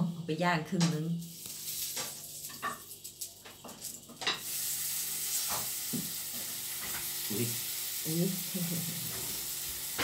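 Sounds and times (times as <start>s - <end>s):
sausage sizzling in a pan: 0.0s - 10.0s.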